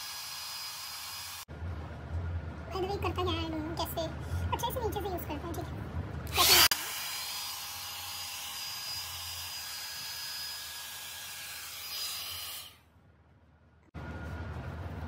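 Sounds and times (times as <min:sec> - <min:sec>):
hair styler fan blowing: 0:00.0 - 0:01.5, 0:06.2 - 0:12.8.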